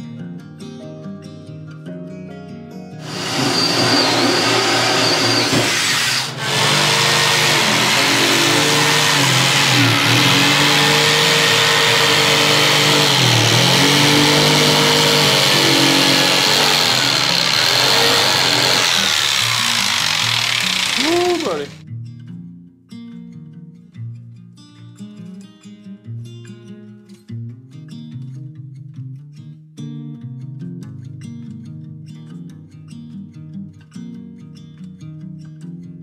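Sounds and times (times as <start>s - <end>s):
jigsaw cutting wood: 3.0s - 21.8s.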